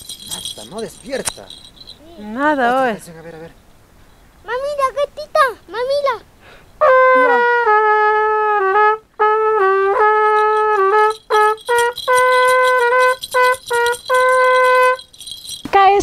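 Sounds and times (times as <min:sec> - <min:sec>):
solo trumpet playing: 0:06.8 - 0:15.2.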